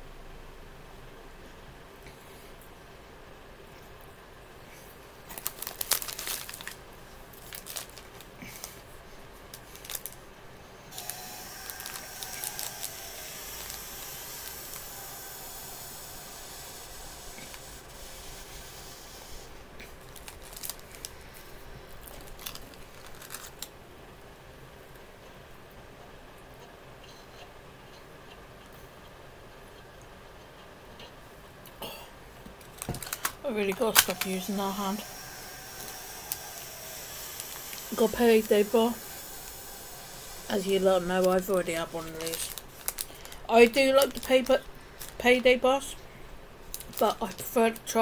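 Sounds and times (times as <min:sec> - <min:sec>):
steady hiss: 0:00.0 - 0:24.9, 0:33.1 - 0:48.0
snack wrapper crinkling: 0:05.2 - 0:10.3, 0:10.9 - 0:23.8, 0:32.6 - 0:45.5, 0:46.6 - 0:47.9.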